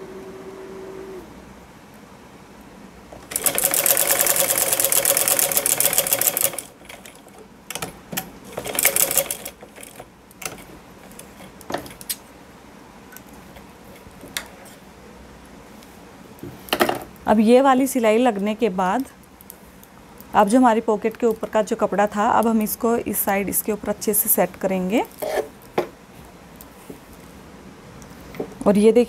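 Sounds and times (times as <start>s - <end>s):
sewing machine stitching: 3.2s - 7.2s, 8.5s - 10.6s.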